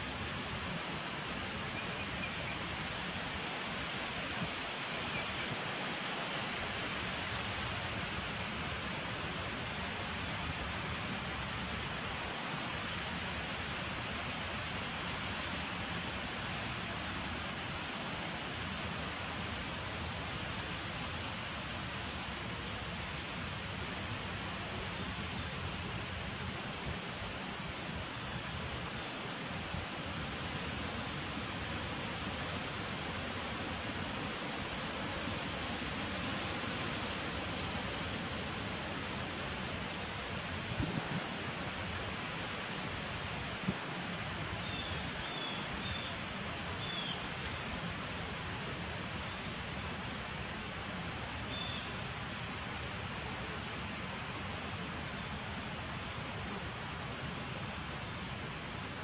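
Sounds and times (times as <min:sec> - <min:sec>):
high-pitched insect drone: 0:44.6 - 0:46.2, 0:46.8 - 0:47.2, 0:51.4 - 0:51.9.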